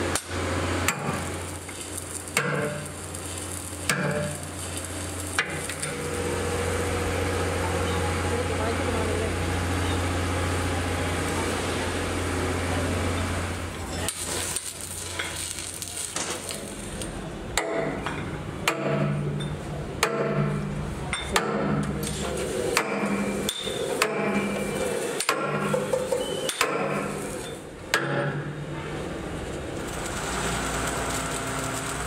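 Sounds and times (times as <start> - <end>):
sledgehammer striking steel: 0.8 - 1.3, 2.3 - 3.0, 3.8 - 4.5, 17.6 - 22.0, 22.7 - 27.2, 27.9 - 28.6.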